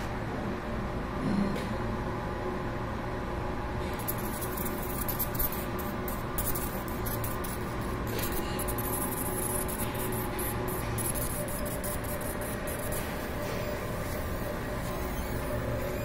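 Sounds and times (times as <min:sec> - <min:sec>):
machine hum: 0:02.7 - 0:16.0
laser beam hiss and crackle: 0:04.0 - 0:16.0.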